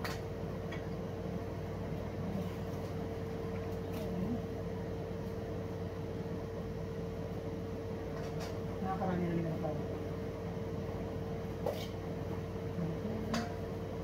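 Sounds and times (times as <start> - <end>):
steady machine hum: 0.0 - 14.0.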